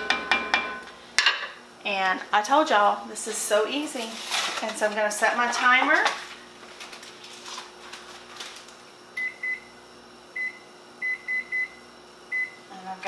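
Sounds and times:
kitchen timer keypad beeps: 9.2s - 9.7s, 10.4s - 12.6s.

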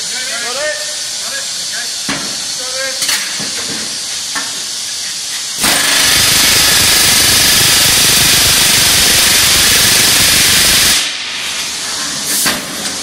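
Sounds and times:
gas torch hissing: 0.0s - 13.0s
pneumatic rivet gun hammering: 5.3s - 11.2s.

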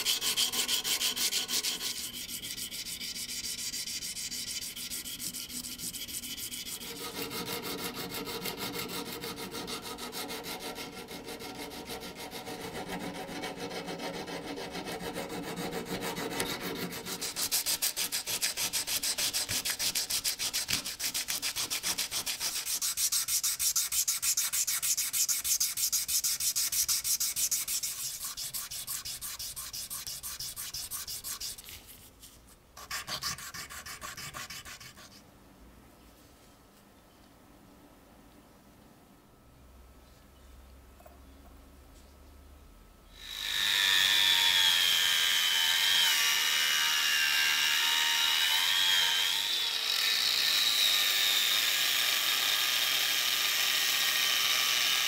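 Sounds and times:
file scraping metal: 0.0s - 31.8s, 32.8s - 35.2s.

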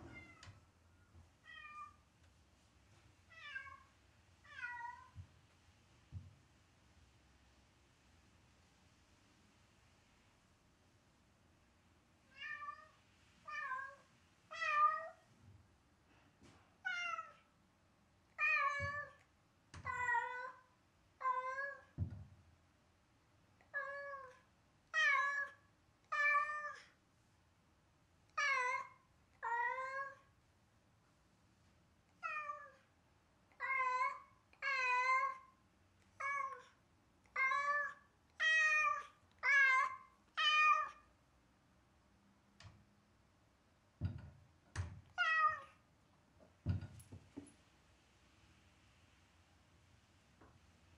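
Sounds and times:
cat meowing: 37.4s - 41.1s, 45.2s - 45.8s
dull thumps: 44.0s - 45.0s.

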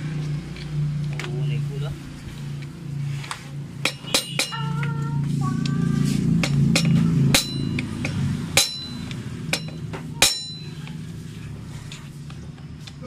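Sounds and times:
hammer striking steel tool: 3.8s - 4.8s, 6.4s - 10.8s.

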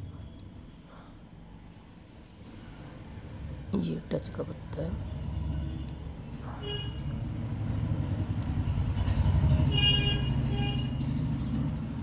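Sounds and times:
vehicle horn toot: 6.5s - 7.1s, 9.7s - 11.0s
vehicle engine passing by: 6.5s - 12.0s.

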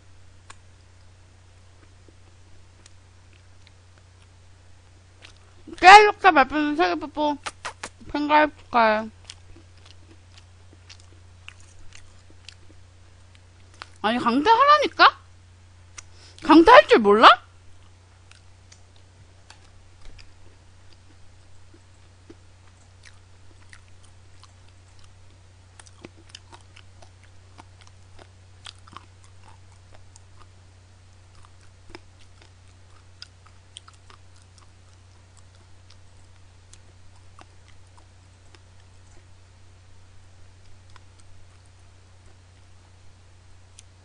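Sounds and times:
low hum: 0.0s - 44.0s
person chewing crunchy food: 5.2s - 5.6s, 9.2s - 14.0s, 17.8s - 39.4s.

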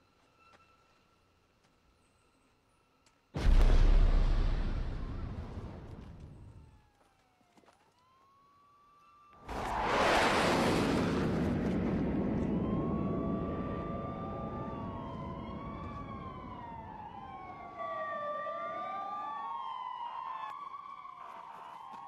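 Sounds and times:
police sirens wailing: 6.3s - 9.4s, 11.7s - 22.0s.

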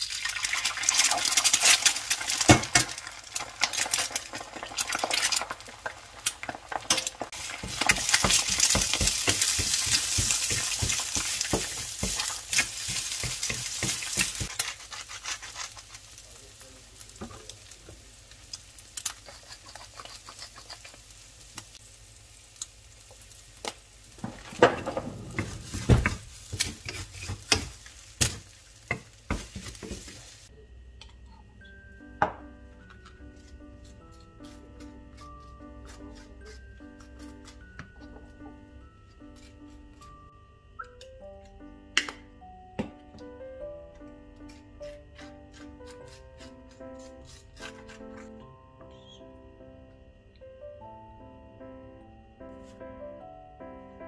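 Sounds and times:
eggs sizzling in frying pan: 0.0s - 30.5s
spatula scraping pan: 6.8s - 16.1s, 19.2s - 20.9s, 24.2s - 27.9s.

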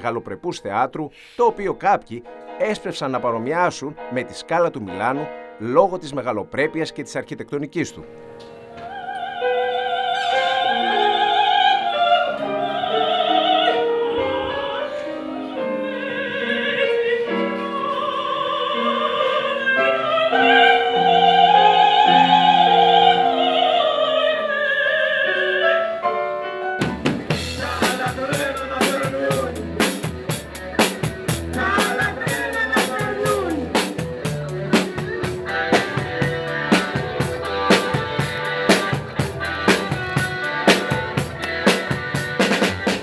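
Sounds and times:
instrumental accompaniment: 1.1s - 43.0s
soprano singing opera: 8.6s - 26.2s, 31.5s - 33.8s
live band playing: 26.2s - 43.0s
drum kit hits: 26.8s - 43.0s.

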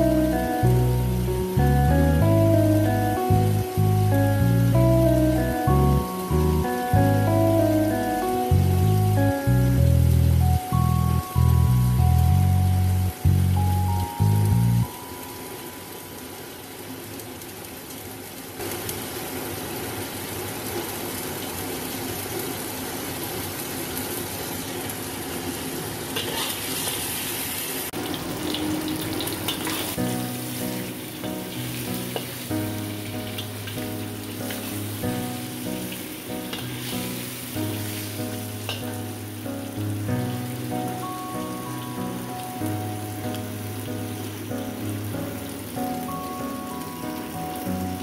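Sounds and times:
background music with low notes: 0.0s - 16.2s, 29.8s - 48.0s
ribs sizzling in oil: 0.0s - 48.0s
metal spatula scraping wok: 26.2s - 27.1s, 28.4s - 32.5s, 36.4s - 38.9s.

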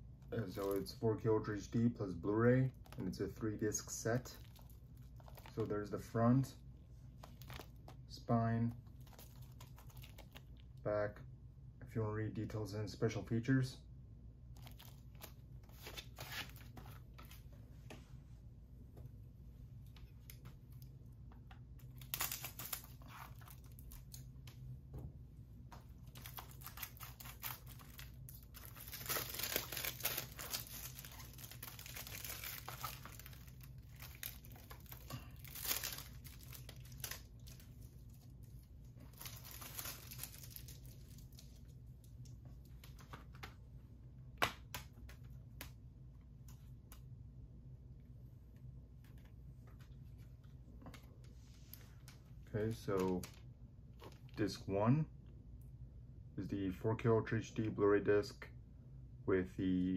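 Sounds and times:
plastic wrap tearing and crinkling: 2.7s - 5.9s, 7.2s - 8.1s, 8.8s - 10.6s, 14.6s - 17.2s, 21.8s - 24.3s, 26.0s - 41.6s.

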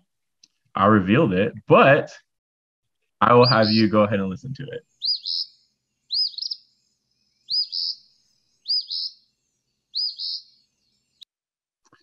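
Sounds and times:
bird singing two-part song: 3.2s - 10.6s.

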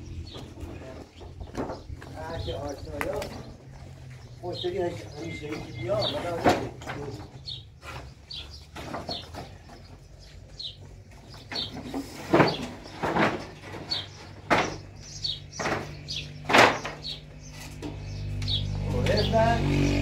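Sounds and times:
knocks and scrapes: 0.3s - 3.5s, 5.4s - 10.0s, 11.1s - 18.0s.

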